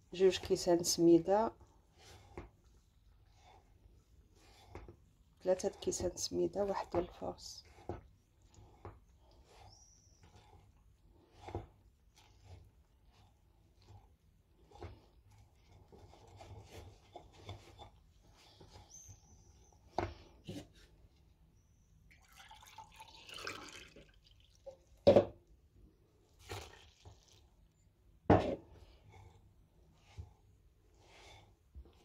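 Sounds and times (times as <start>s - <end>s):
liquid pouring into glass: 22.1s - 24.9s.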